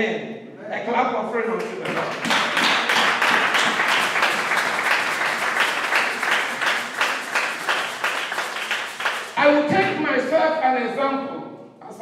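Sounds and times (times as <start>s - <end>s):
congregation applauding: 1.6s - 9.6s.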